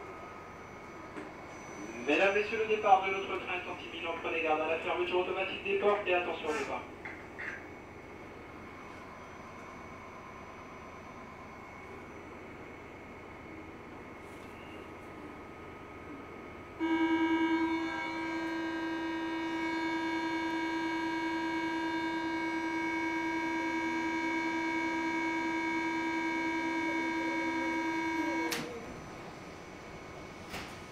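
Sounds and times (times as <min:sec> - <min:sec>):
train door warning buzzer: 0:16.8 - 0:28.7
train doors thumping shut: 0:30.4 - 0:30.9.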